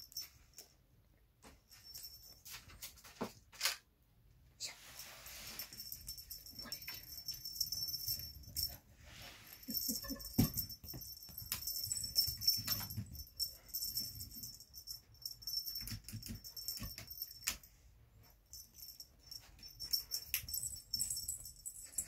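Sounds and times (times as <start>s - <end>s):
rustling on a rug: 4.7s - 14.9s
metallic jingling and clicking: 5.7s - 8.8s, 9.6s - 17.7s, 18.5s - 22.0s.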